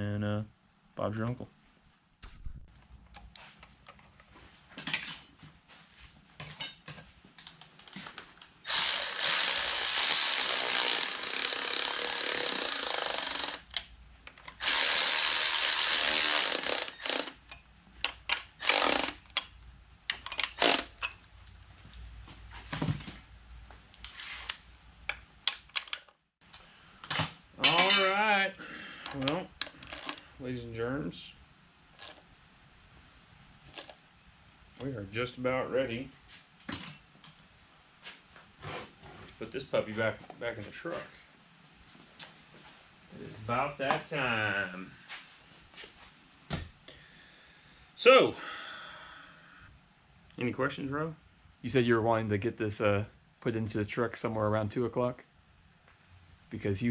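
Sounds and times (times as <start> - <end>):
cordless ratchet running: 8.7 - 13.8, 14.6 - 17.5, 18.6 - 19.2, 20.4 - 20.9, 29.8 - 30.2
hand tools clicking and knocking: 20.1 - 21.2, 27.0 - 28.3.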